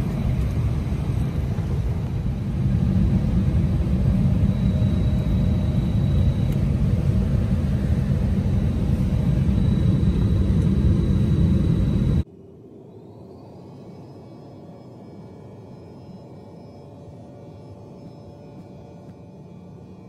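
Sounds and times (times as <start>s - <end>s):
jet airliner cabin rumble: 0.0s - 12.3s.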